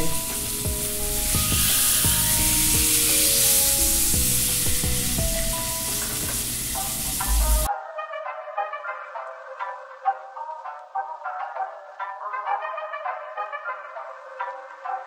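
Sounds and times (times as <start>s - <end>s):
fish sizzling in hot oil: 0.0s - 7.7s.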